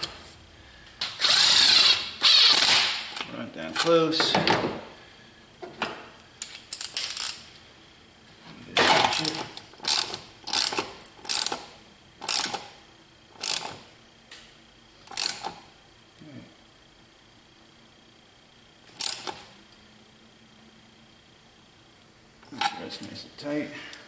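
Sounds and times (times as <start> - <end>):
hand ratchet clicking: 6.5 - 7.4, 8.9 - 12.7, 13.4 - 13.8, 15.1 - 15.6, 19.0 - 19.4.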